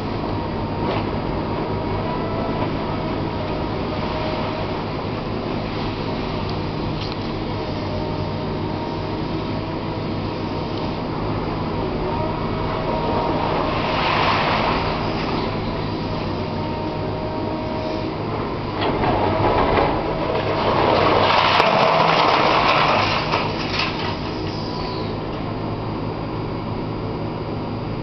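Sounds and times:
excavator engine and hydraulics hum: 0.0 - 28.0
rubble falling: 19.0 - 24.4.

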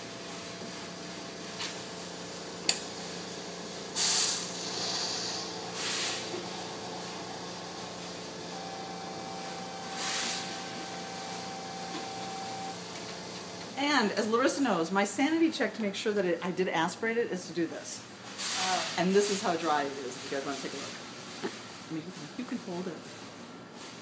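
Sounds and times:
pump hum: 0.0 - 13.8
steady whine: 4.4 - 13.8.

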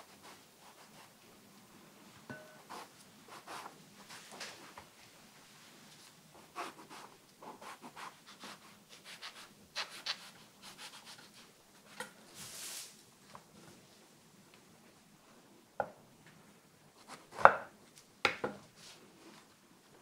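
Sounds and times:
knife slicing eggplant: 6.6 - 12.1.

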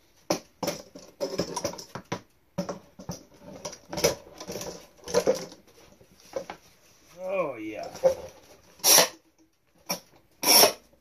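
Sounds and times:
wooden boards knocking and clattering: 0.2 - 6.6.

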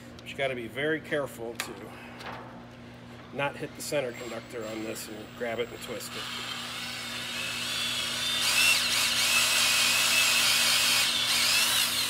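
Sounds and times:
tool cutting foam: 6.6 - 12.0.

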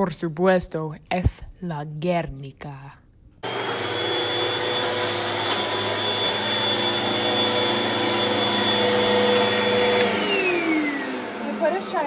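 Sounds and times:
upright vacuum cleaner running: 3.4 - 12.0.

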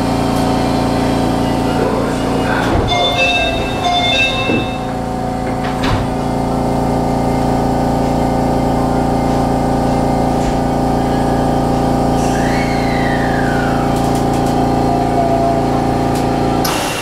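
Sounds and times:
monorail mechanical hum: 0.0 - 17.0
brief high tones: 2.7 - 5.2.

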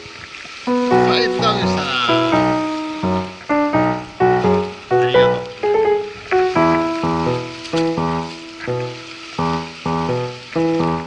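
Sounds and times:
plucked keyboard-like chords: 0.7 - 11.0.

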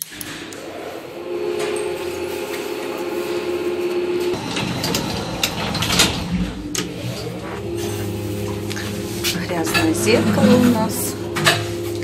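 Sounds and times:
deep drone: 0.0 - 12.0
lift doors clattering and clicking: 0.0 - 12.0
lift hum: 0.0 - 12.0.

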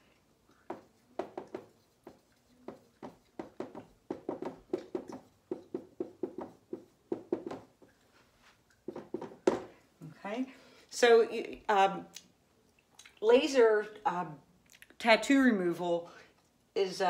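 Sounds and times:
pen strokes and taps: 0.5 - 8.1.

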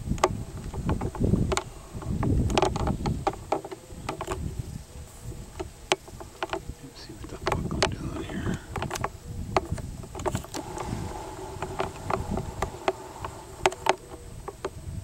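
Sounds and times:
insect buzzing: 0.0 - 15.0
sharp clicks and crackles: 5.5 - 14.8.

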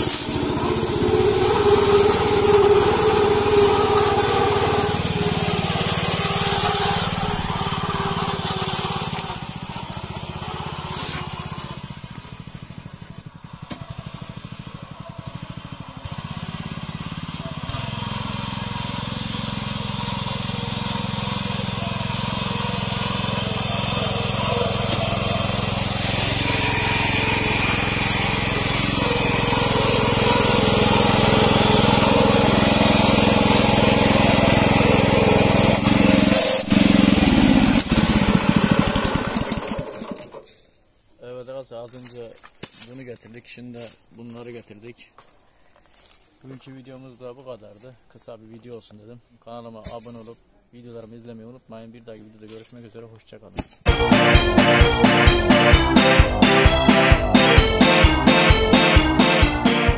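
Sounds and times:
single-cylinder engine running: 0.0 - 40.5, 53.9 - 59.9.

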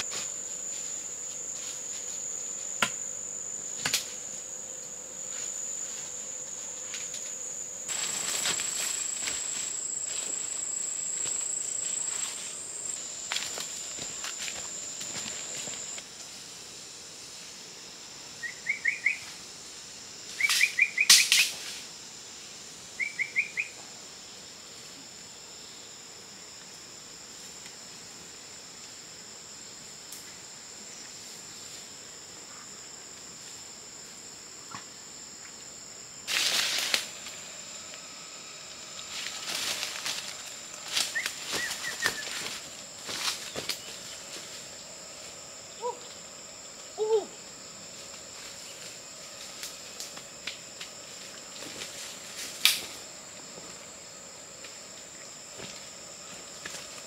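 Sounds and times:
high insect drone: 0.0 - 57.0
rustling in dry leaves: 5.3 - 16.0, 36.3 - 37.8, 38.8 - 45.3.

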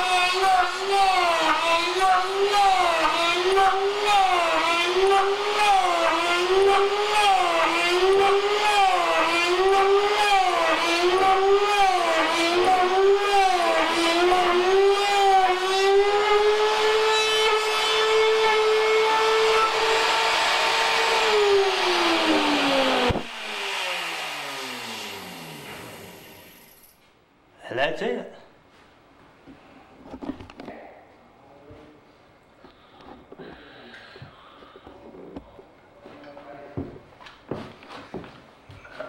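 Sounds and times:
electric router cutting wood: 0.0 - 26.7.

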